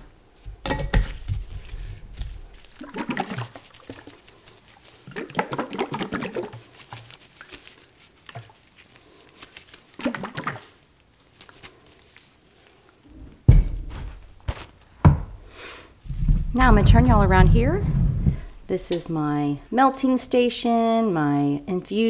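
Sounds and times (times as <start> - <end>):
oil sloshing in shaken jar: 0.9 - 10.8
loud thump: 13.4 - 14.0.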